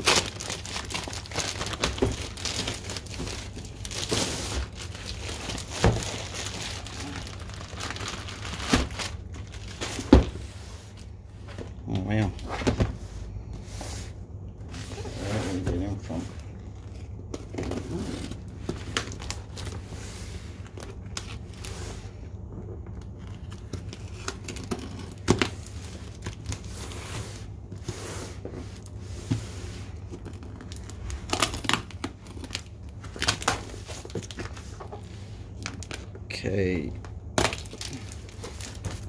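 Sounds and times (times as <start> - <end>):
tape tearing: 0.0 - 10.0
cardboard scraping: 12.4 - 19.0.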